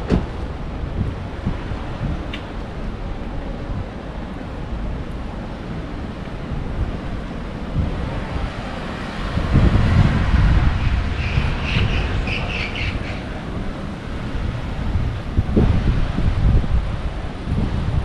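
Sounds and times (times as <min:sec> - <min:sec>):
street noise and traffic: 0:00.0 - 0:18.0
wind rumbling on microphone: 0:00.0 - 0:18.0
birds chirping: 0:10.8 - 0:13.4.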